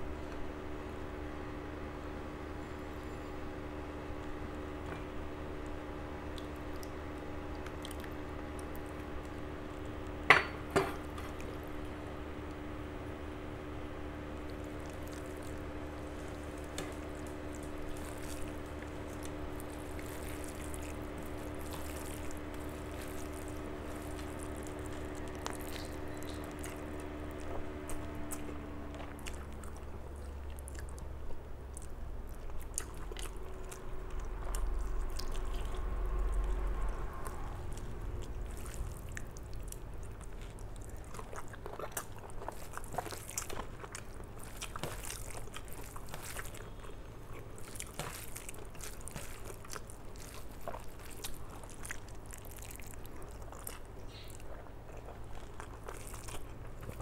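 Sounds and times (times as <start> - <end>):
faint steady hum: 0.0 - 57.0
chewing with wet smacks: 4.9 - 10.2, 14.3 - 57.0
fingers squishing rice: 14.4 - 29.8.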